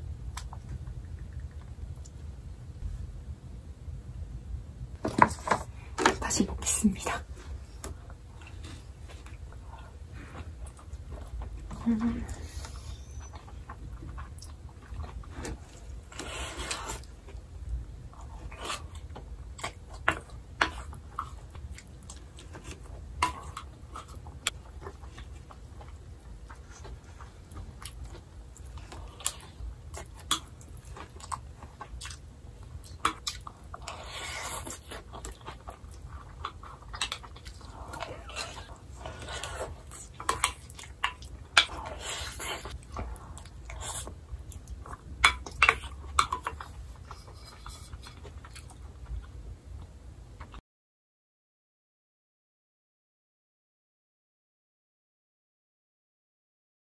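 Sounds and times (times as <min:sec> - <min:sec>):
steady low hum: 0:00.0 - 0:50.6
person chewing food: 0:07.3 - 0:50.6.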